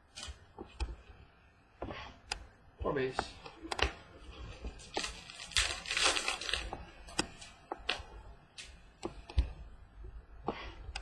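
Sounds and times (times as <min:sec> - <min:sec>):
foil wrapper rustling: 0:04.8 - 0:06.8.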